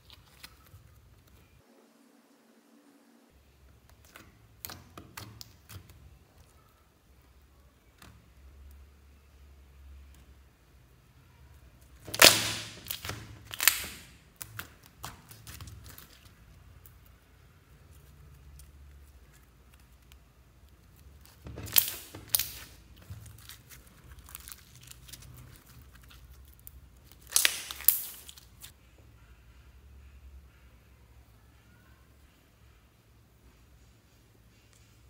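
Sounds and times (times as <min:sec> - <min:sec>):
slime popping and crackling: 0:11.8 - 0:17.2, 0:18.0 - 0:28.7.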